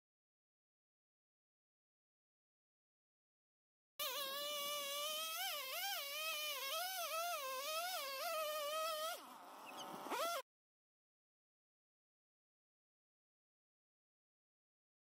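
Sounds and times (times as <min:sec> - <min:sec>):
chainsaw cutting wood: 0:04.1 - 0:09.3.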